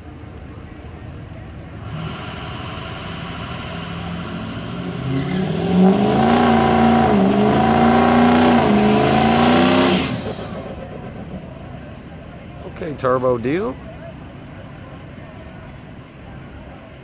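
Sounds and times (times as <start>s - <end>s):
vehicle engines accelerating hard: 1.6s - 11.9s.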